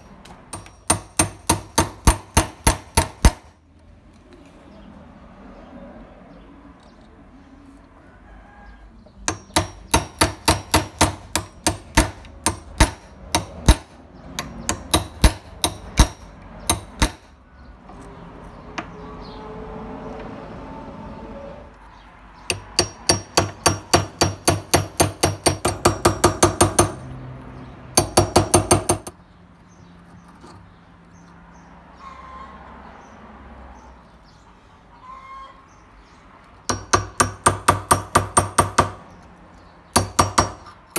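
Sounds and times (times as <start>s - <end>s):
hammer striking metal punch: 0.0s - 3.5s, 9.2s - 17.4s, 22.5s - 27.0s, 28.0s - 29.2s, 36.7s - 39.0s, 39.9s - 40.8s.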